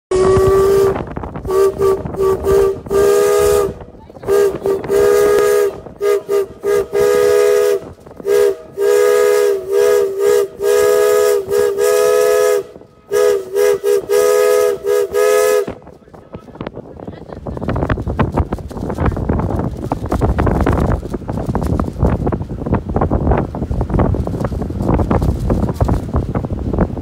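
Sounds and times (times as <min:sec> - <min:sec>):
boat horn toots and blasts: 0:00.1 - 0:16.0.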